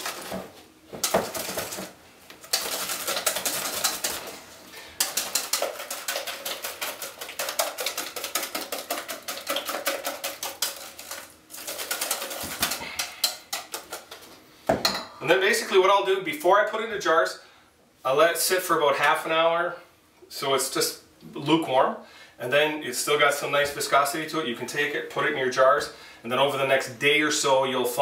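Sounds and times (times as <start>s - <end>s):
whisk clicking against metal bowl: 2.4s - 4.3s, 5.0s - 14.2s.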